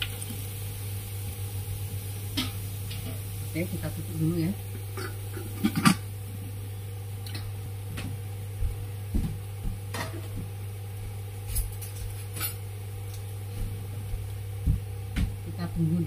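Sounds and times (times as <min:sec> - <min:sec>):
covered pan humming: 0:00.0 - 0:16.0.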